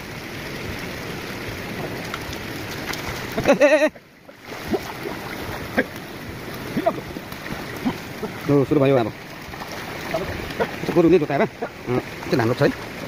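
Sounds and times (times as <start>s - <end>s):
water running and splashing: 0.0s - 13.0s.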